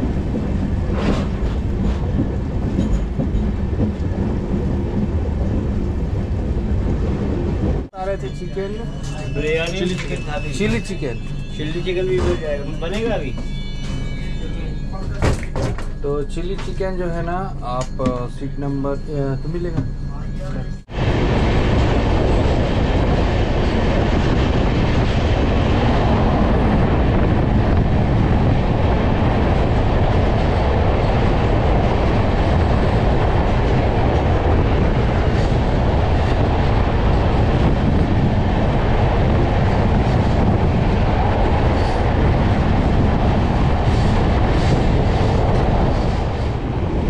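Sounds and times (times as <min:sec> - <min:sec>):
wind rush: 0:00.0 - 0:08.2, 0:20.8 - 0:47.0
train wheels on rails: 0:00.0 - 0:17.1, 0:19.5 - 0:47.0
train passing alongside: 0:00.0 - 0:47.0.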